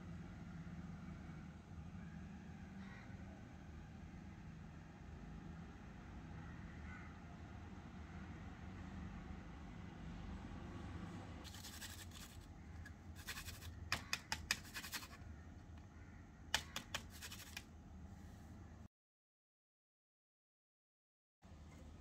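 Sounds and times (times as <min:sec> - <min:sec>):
spatula scraping a bowl: 0:11.4 - 0:15.2, 0:16.6 - 0:17.6
sharp clicks: 0:16.5 - 0:17.6.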